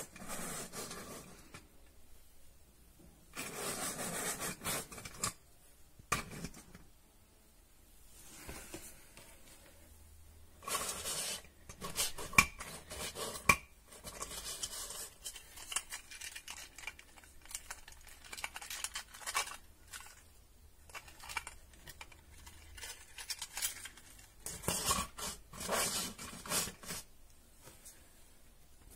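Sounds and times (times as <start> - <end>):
plastic toy clicking and clattering: 13.4 - 20.3, 20.9 - 25.2.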